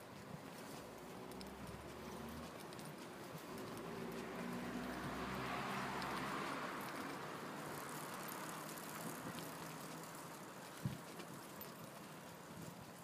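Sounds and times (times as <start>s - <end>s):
car driving past: 1.1s - 10.4s.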